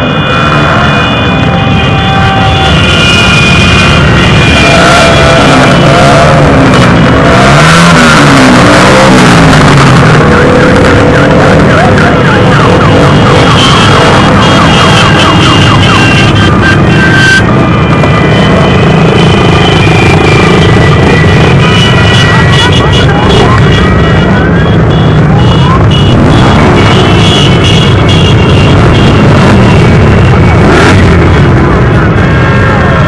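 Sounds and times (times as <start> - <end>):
warbling siren-like tone: 0.0 - 24.9
motorcycle engines revving: 0.0 - 33.0.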